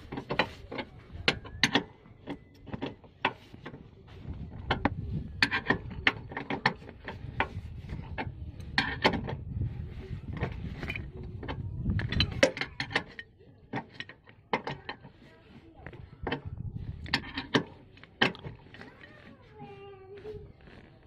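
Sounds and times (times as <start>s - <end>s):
seat belt retractor ratcheting: 16.2s - 19.3s.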